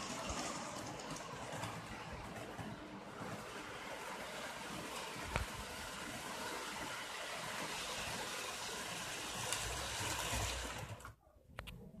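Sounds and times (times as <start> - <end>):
model locomotive rumble: 0.0 - 11.2
model train hiss: 3.4 - 11.0.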